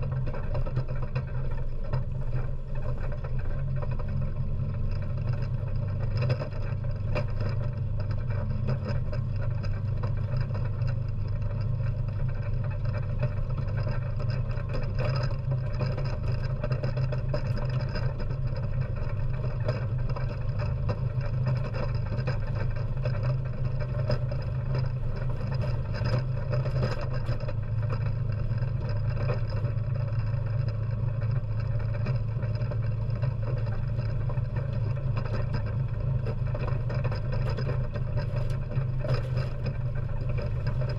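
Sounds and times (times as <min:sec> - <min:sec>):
atv engine running: 0:00.0 - 0:40.9.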